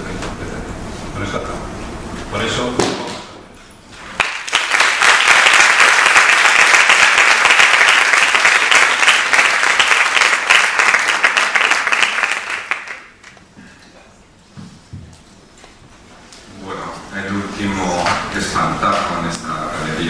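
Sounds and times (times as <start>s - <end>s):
audience applauding: 4.0s - 13.4s.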